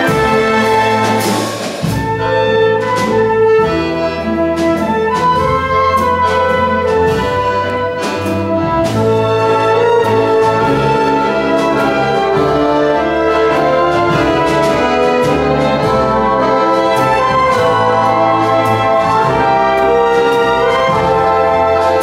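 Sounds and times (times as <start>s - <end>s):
accordion: 0.0s - 22.0s
drum kit: 0.0s - 22.0s
sharp drum strokes: 0.0s - 22.0s
trumpet playing: 0.0s - 22.0s.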